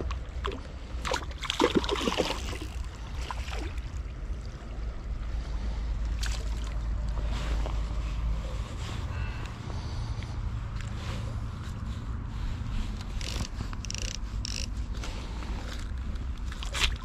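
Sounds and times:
fish splashing in water: 0:00.1 - 0:04.5, 0:06.2 - 0:06.8
low rumble: 0:01.8 - 0:17.0.

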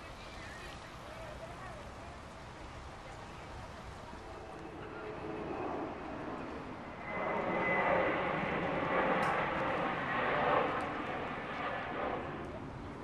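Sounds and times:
airplane engine rushing overhead: 0:00.0 - 0:13.0.

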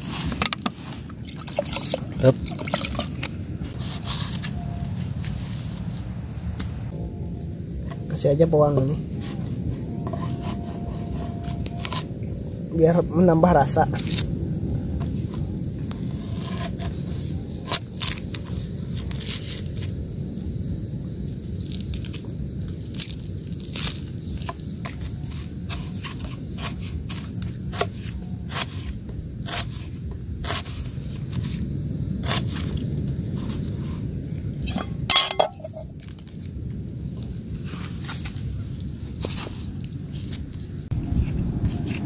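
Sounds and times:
steady low rush: 0:00.0 - 0:17.7, 0:30.9 - 0:42.0.

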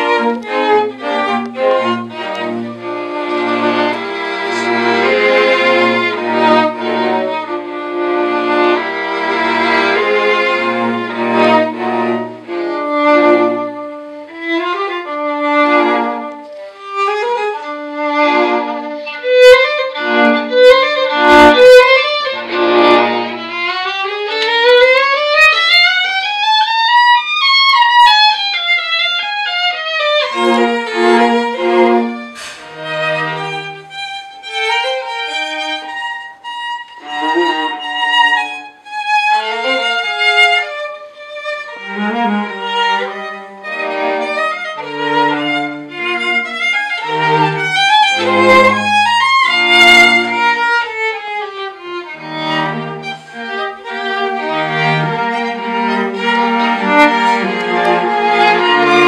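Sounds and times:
string quartet playing: 0:00.0 - 0:59.0.

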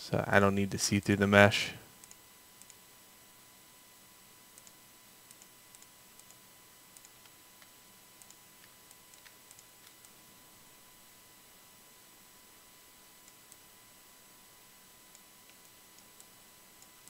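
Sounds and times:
faint steady hiss: 0:00.0 - 0:17.0
faint computer mouse clicks: 0:02.0 - 0:02.8, 0:04.5 - 0:10.2.

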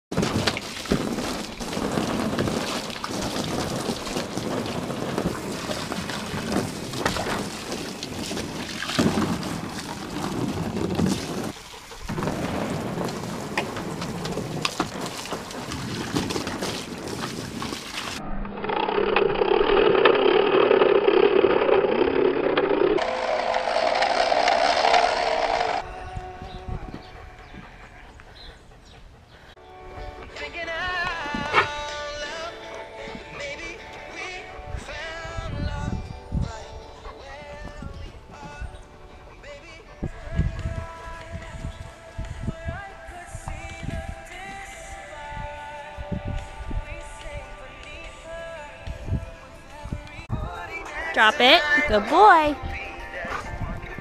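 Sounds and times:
dog splashing in water: 0:00.1 - 0:18.2
water gushing from a hose: 0:00.1 - 0:18.2.

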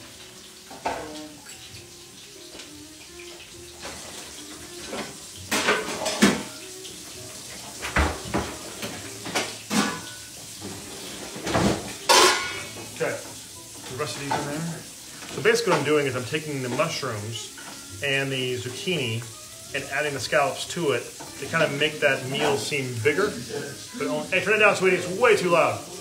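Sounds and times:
metal pans clanking and scraping: 0:03.8 - 0:06.6, 0:07.4 - 0:17.9, 0:21.0 - 0:24.3.

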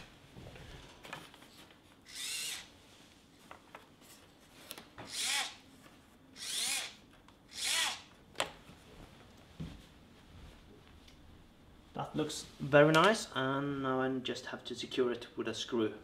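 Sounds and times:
servo whirring: 0:02.1 - 0:02.7, 0:05.1 - 0:05.6, 0:06.4 - 0:08.0.

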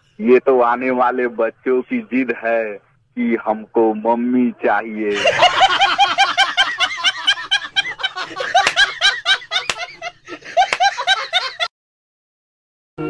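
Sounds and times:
person laughing: 0:05.1 - 0:11.7.

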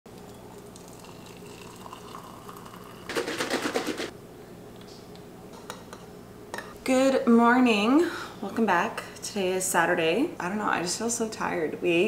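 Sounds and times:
water trickling into a mug: 0:00.2 - 0:03.1.

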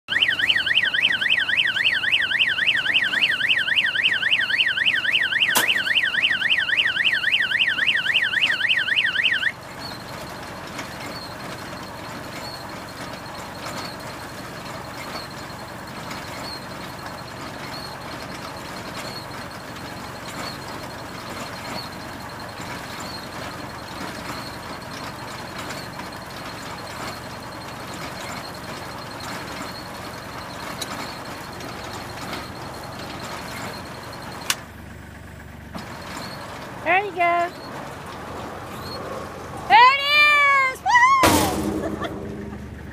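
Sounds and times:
electronic alarm warbling: 0:00.1 - 0:10.0
baler mechanical running noise: 0:00.1 - 0:42.9.

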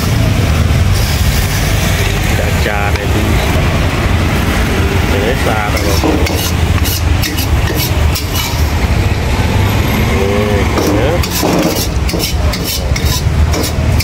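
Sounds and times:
low rumble: 0:00.3 - 0:06.8
metal spatula scraping a wok: 0:05.7 - 0:08.8, 0:10.7 - 0:14.0.

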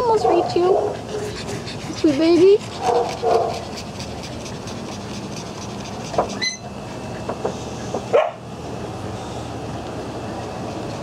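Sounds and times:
steady background noise: 0:00.0 - 0:11.0
dogs whining and yipping: 0:00.2 - 0:08.2.

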